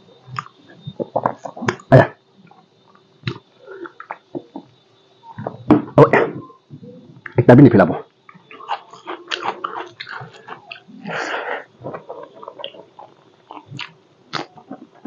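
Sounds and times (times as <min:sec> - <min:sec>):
wet chewing clicks and smacks: 0:00.3 - 0:00.6, 0:08.3 - 0:10.9, 0:11.8 - 0:15.0.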